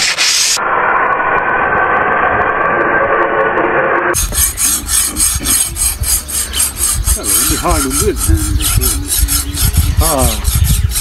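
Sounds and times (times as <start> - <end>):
file stroking a blade: 4.2 - 11.0
metallic scraping of blades: 4.2 - 11.0.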